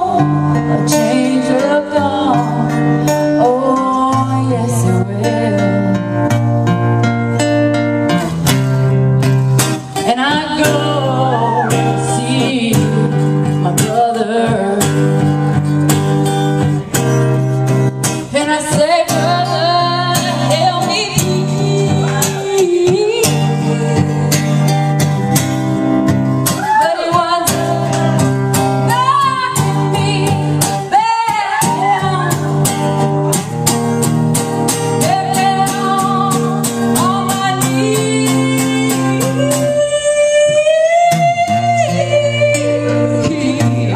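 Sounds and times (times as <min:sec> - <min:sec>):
acoustic guitar strumming: 0:00.0 - 0:43.9
person singing: 0:09.8 - 0:15.2, 0:18.3 - 0:24.7, 0:35.0 - 0:43.9.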